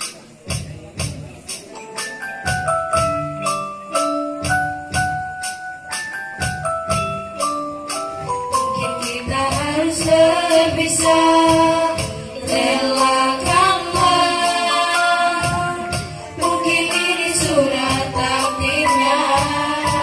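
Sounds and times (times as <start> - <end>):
steady low beat: 6.4 - 20.0
women singing a melody: 8.8 - 20.0.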